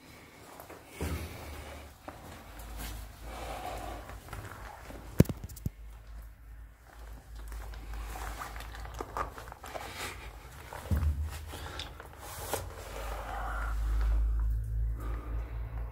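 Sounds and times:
scuffing and handling noise: 0:00.0 - 0:14.5
low rumble: 0:13.0 - 0:15.9.

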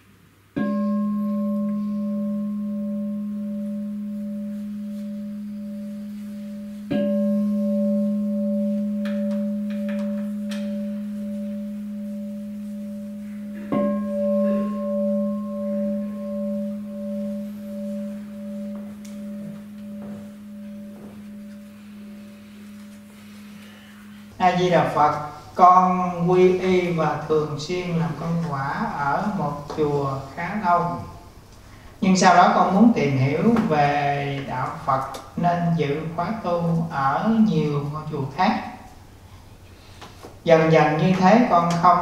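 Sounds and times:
bowl bell ringing: 0:00.6 - 0:31.0.

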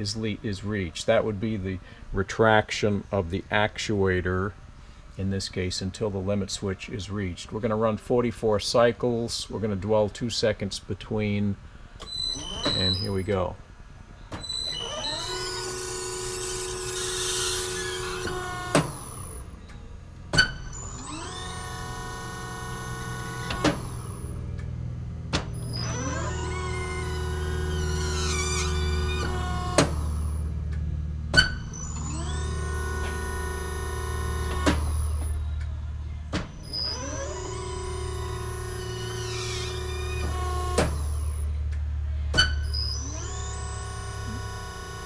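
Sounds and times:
hydraulic pump whine: 0:11.3 - 0:45.0.

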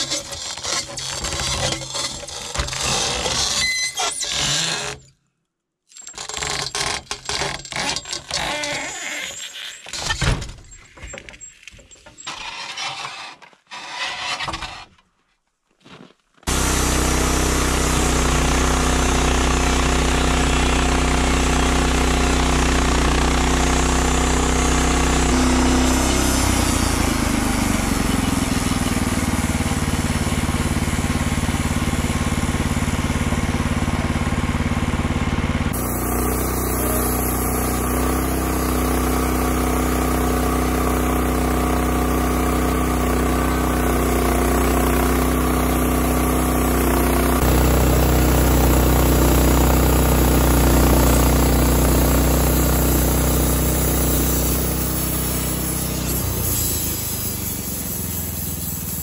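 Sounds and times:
band saw blade cutting log: 0:00.0 - 0:05.1, 0:06.0 - 0:10.1, 0:12.2 - 0:14.9, 0:16.5 - 0:20.4, 0:35.7 - 0:59.0
gas engine running: 0:16.5 - 0:59.0.

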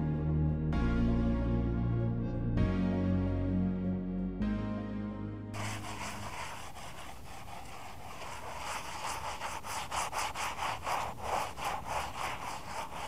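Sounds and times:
wet sponge wiping brick: 0:05.6 - 0:13.0.

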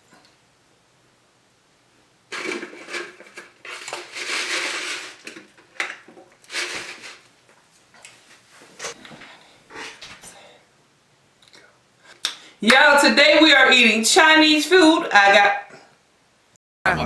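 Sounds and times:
packaging rustling: 0:02.3 - 0:07.3.

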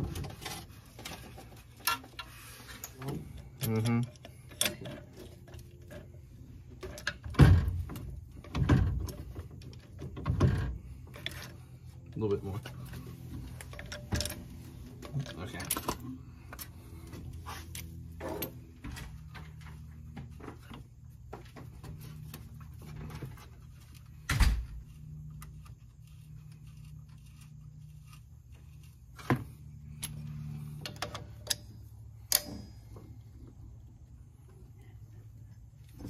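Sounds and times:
steady low hum: 0:00.0 - 0:36.0
metal clinks and knocks: 0:12.5 - 0:33.7.

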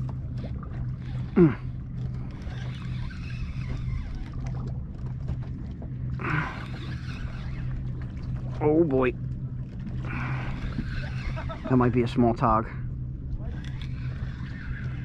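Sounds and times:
electric motor humming: 0:00.0 - 0:04.8.

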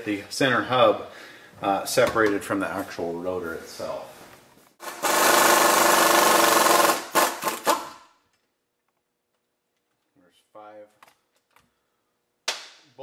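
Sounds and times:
pneumatic impact wrench hammering: 0:04.8 - 0:08.1.

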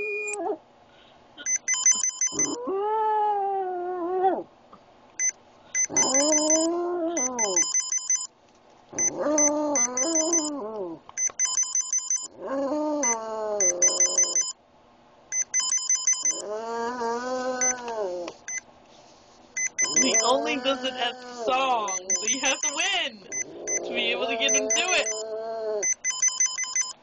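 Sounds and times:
rapid electronic beeping: 0:01.5 - 0:02.6, 0:05.2 - 0:08.3, 0:09.0 - 0:10.5, 0:13.6 - 0:14.5, 0:15.4 - 0:16.4, 0:19.6 - 0:20.8, 0:21.8 - 0:25.2, 0:25.8 - 0:27.0
dog howling: 0:12.4 - 0:13.9.

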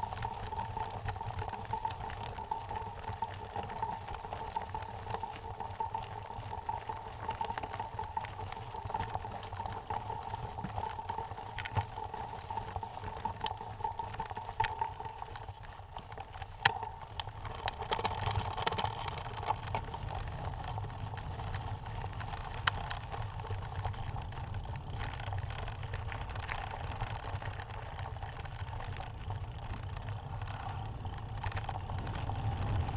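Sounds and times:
wind rumble on microphone: 0:16.7 - 0:32.9.

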